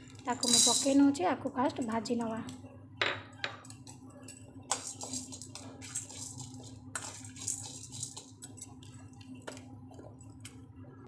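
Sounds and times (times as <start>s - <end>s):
grains scraping and rattling in pan: 4.7s - 9.1s.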